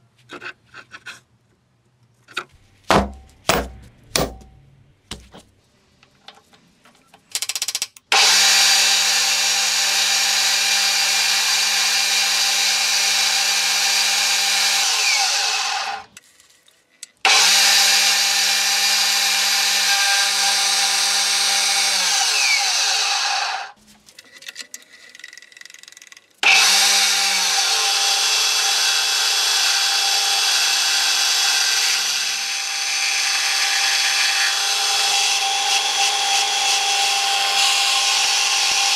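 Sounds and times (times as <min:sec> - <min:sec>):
electric power tool on steel: 0:08.1 - 0:16.1, 0:17.3 - 0:23.8, 0:26.4 - 0:38.9.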